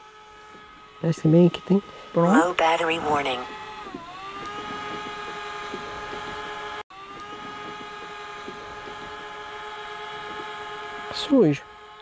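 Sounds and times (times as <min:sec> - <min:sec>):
drone propellers whining: 0:00.0 - 0:12.0.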